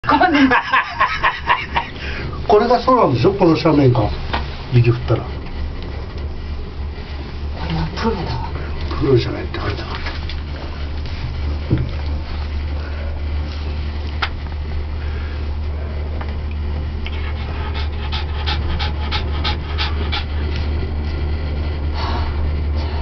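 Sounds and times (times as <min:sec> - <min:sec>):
steady low hum: 0:00.0 - 0:23.0
dog panting: 0:17.0 - 0:21.3.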